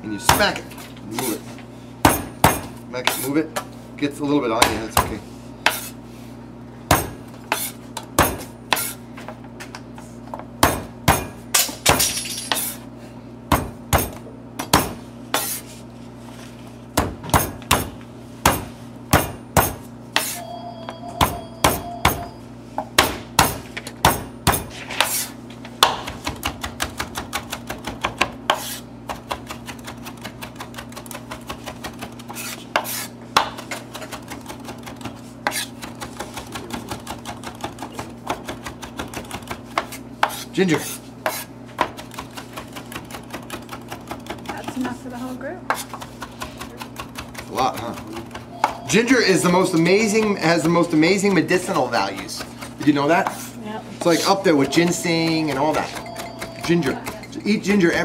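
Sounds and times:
knife chopping on cutting board: 2.0 - 3.3, 4.6 - 6.0, 6.9 - 9.3, 10.4 - 11.4, 13.5 - 15.6, 17.0 - 20.4, 22.8 - 44.7, 45.7 - 48.8, 51.8 - 54.2.

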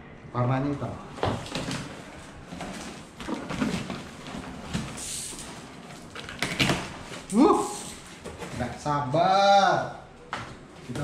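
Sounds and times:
packaging rustling: 1.3 - 8.8.

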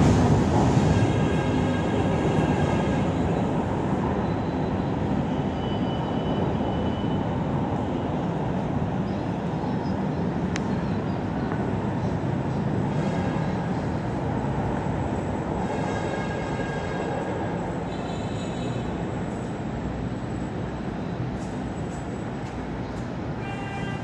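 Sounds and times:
train wheels rumbling on rails: 0.0 - 5.2.

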